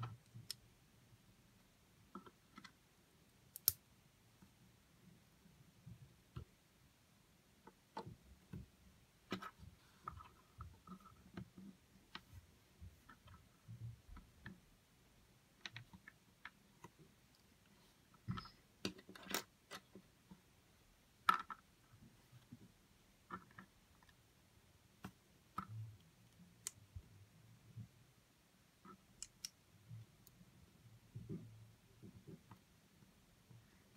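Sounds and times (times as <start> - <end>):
small plastic clicks and taps: 0.0 - 0.7, 3.5 - 3.8, 15.6 - 17.5, 25.0 - 28.0, 28.8 - 30.4.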